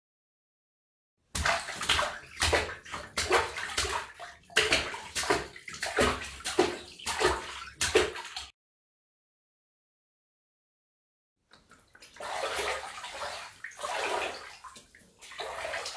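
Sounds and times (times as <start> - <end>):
water splashing and sloshing: 1.2 - 8.6, 11.4 - 15.9.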